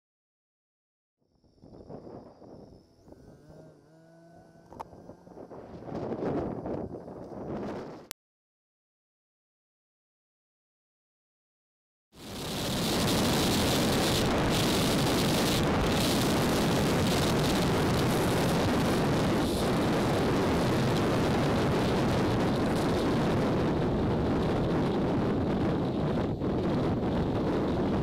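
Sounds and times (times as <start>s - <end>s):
wind rushing over microphone: 1.4s - 8.1s, 12.2s - 28.0s
scooter engine: 1.9s - 8.1s, 12.3s - 23.8s
road noise: 2.2s - 8.1s, 12.2s - 27.6s.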